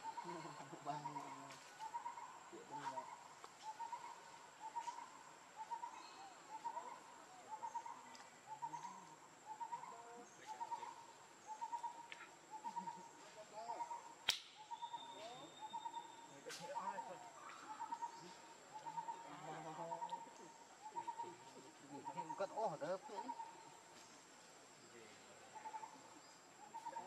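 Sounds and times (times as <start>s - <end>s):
sharp click: 14.2s - 14.6s.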